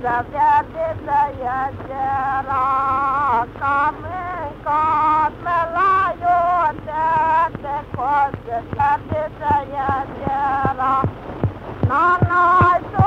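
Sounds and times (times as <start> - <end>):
sharp clicks: 6.6 - 13.0.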